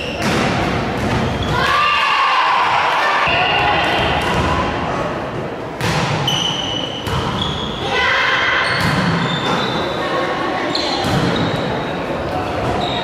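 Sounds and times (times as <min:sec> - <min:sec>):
players and spectators shouting: 0:01.4 - 0:04.8.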